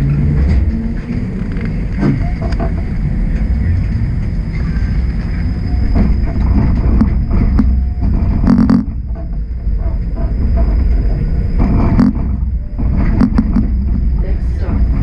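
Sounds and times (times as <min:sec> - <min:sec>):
streetcar rumbling: 0:00.0 - 0:15.0
faint high whine: 0:03.3 - 0:15.0.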